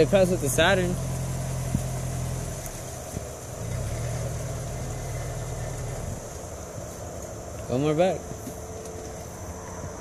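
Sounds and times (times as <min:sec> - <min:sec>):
car engine at low revs: 0:00.0 - 0:07.7.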